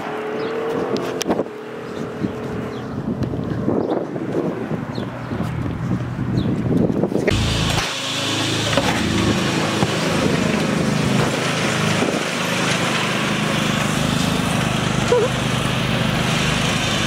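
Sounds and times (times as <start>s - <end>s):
lawn mower engine running: 7.3s - 17.0s.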